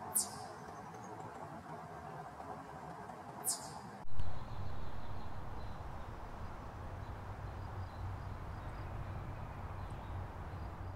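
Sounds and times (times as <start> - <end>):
chipmunk clucking alarm calls: 0.1 - 0.5, 3.4 - 3.8.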